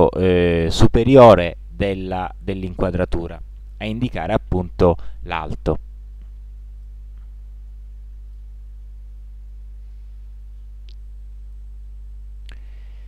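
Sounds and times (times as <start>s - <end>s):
electrical mains hum: 0.0s - 13.0s
faint click: 10.6s - 11.0s.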